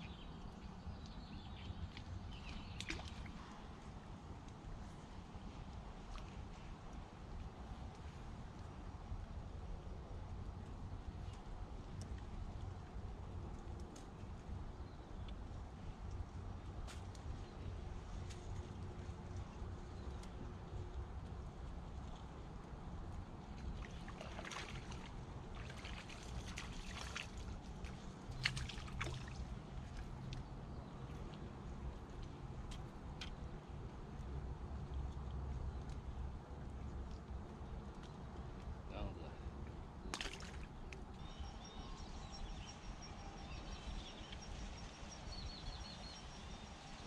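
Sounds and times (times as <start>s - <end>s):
small birds chirping: 0.0s - 3.6s, 37.0s - 47.0s.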